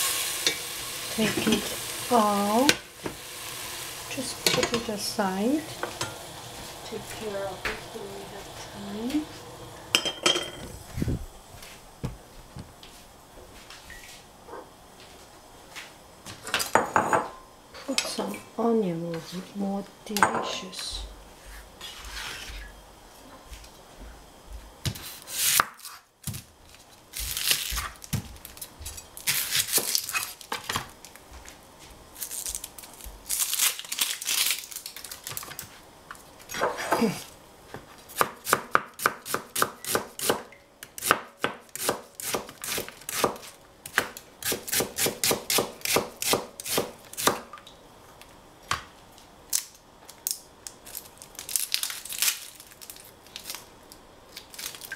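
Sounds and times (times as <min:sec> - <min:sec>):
knife scraping board: 0:21.5 - 0:22.7
knife slicing onion on board: 0:24.9 - 0:26.4, 0:38.1 - 0:47.4.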